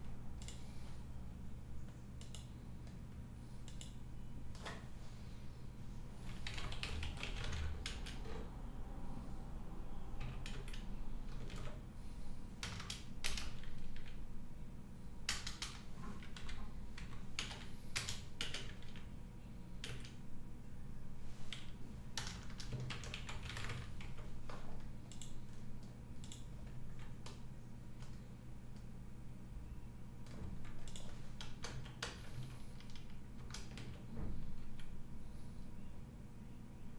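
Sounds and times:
keyboard typing: 0.4s - 0.6s, 2.2s - 3.0s, 6.2s - 8.4s, 10.2s - 11.8s, 12.6s - 14.2s, 15.3s - 19.1s, 19.8s - 20.2s, 21.5s - 27.4s, 30.2s - 34.9s.

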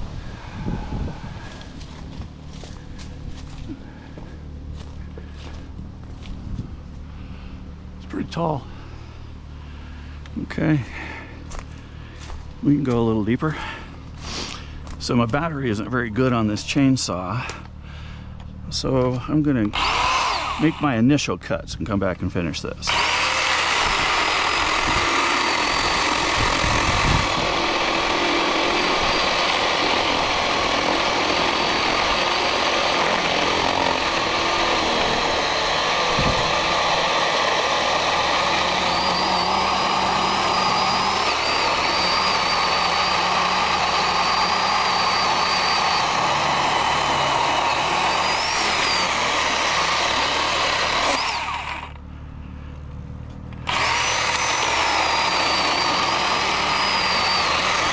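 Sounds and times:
chainsaw cutting tree trunk: 1.4s - 6.4s, 19.6s - 21.2s, 22.8s - 52.1s, 53.6s - 57.9s.

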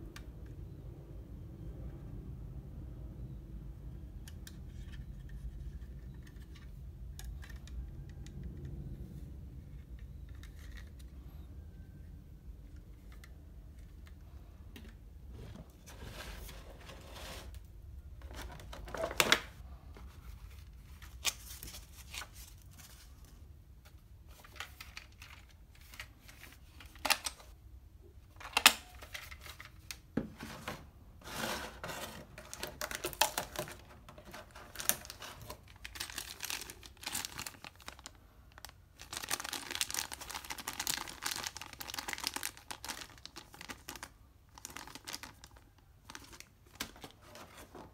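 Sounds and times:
plastic parts clicking and knocking: 4.2s - 8.8s, 32.3s - 38.0s
plastic bag crinkling: 31.9s - 47.9s.

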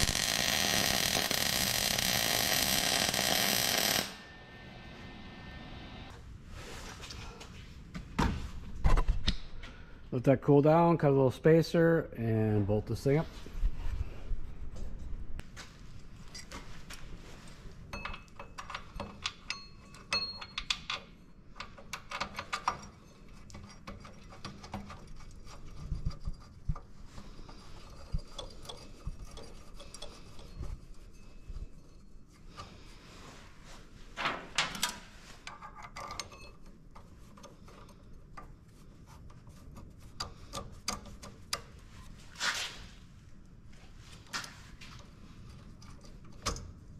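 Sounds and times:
metallic clicks and clinks: 17.9s - 25.3s, 27.8s - 32.0s, 34.7s - 38.0s
metallic ring: 19.3s - 21.6s.

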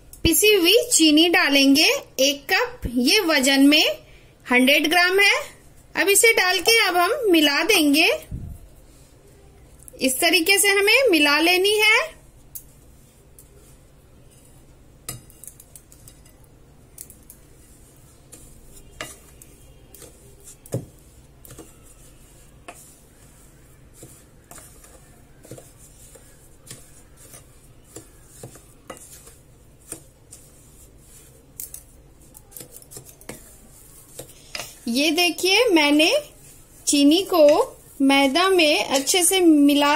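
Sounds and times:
mixture scraping in bowl: 10.2s - 39.9s
spatula clinking glass bowl: 15.0s - 34.8s.

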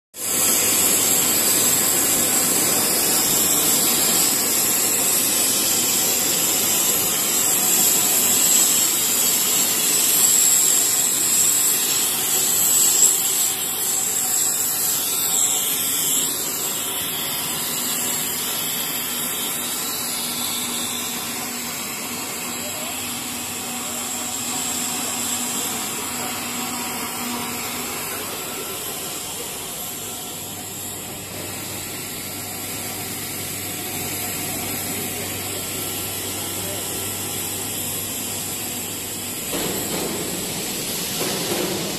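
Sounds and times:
industrial machine hiss and whine: 0.2s - 41.9s.

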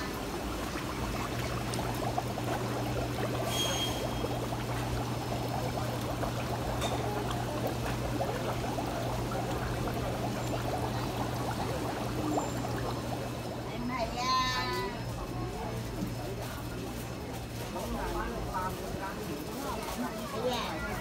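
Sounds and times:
steady low hum: 0.0s - 13.8s
water splashing and pouring: 0.0s - 13.9s.

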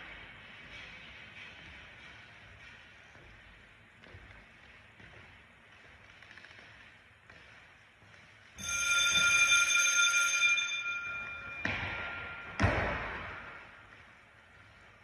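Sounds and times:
bright metallic ringing: 8.6s - 13.9s
echoing thuds: 11.5s - 14.2s.

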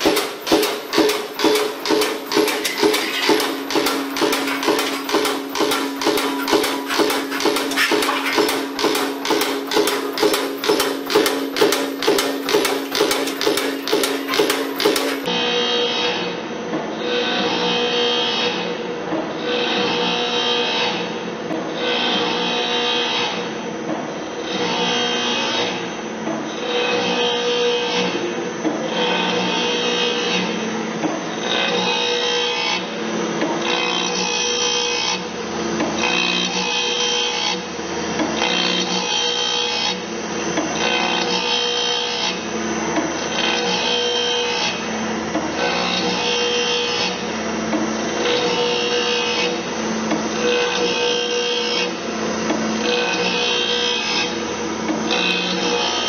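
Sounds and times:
grinding wheel rasping on saw teeth: 0.0s - 15.3s
motor hum: 0.0s - 15.3s.

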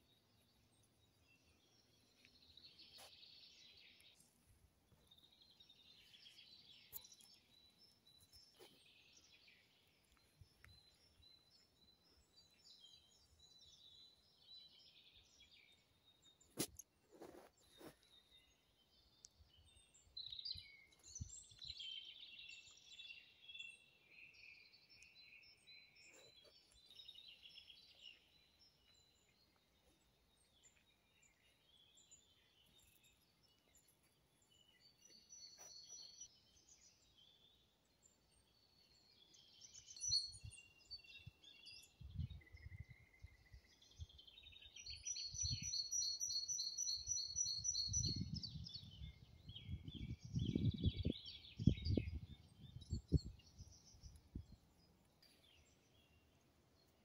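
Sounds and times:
songbirds singing: 0.0s - 57.0s.

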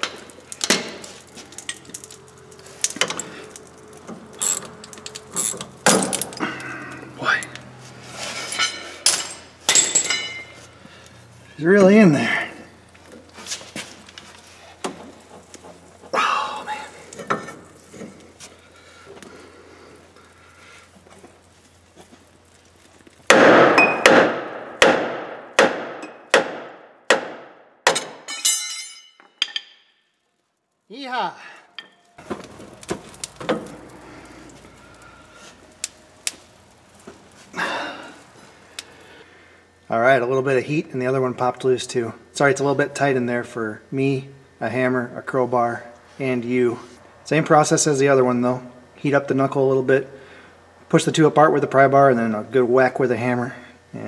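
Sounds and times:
hammer striking steel: 23.3s - 30.0s
metallic tool clinks and knocks: 27.9s - 29.9s.

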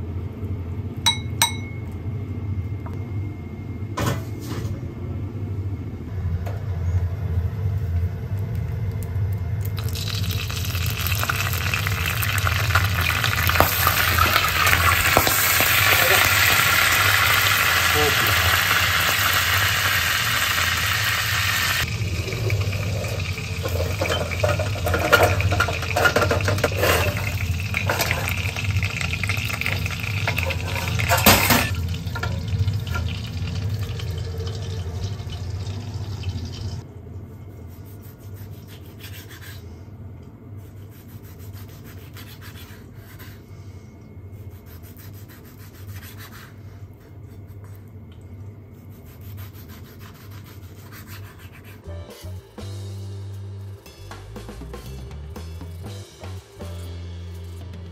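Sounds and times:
gas hob hum: 0.0s - 37.8s
sauce bubbling in saucepan: 9.7s - 17.6s, 31.7s - 36.8s.

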